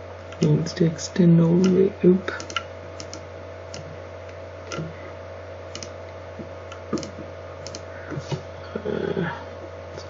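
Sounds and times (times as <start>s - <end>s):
steady low hum: 0.0s - 10.0s
keyboard and mouse clicks: 2.4s - 3.9s, 5.7s - 5.9s, 6.7s - 7.8s.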